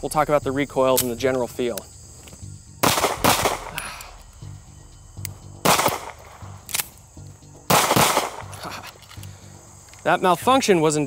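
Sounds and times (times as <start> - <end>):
pistol shots with echo: 2.8 - 4.2, 5.6 - 6.9, 7.7 - 8.5.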